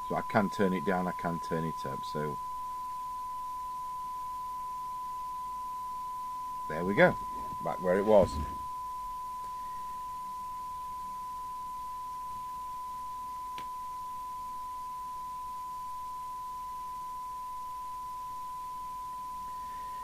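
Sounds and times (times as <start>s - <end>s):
steady test tone: 3.1s - 11.1s.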